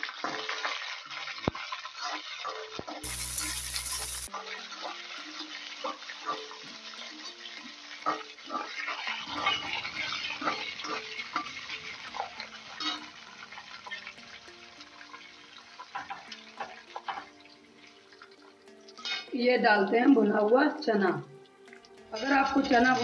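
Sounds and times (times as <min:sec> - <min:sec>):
food sizzling in oil: 0:00.0 - 0:23.0
spatula scraping steel pan: 0:02.0 - 0:04.3.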